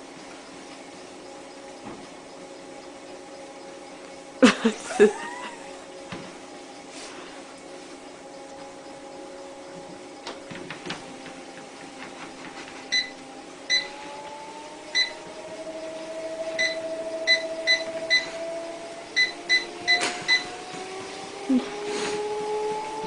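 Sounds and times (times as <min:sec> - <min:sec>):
treadmill motor whine: 0:00.0 - 0:23.0
treadmill control panel beeping: 0:12.9 - 0:14.1, 0:14.9 - 0:21.2.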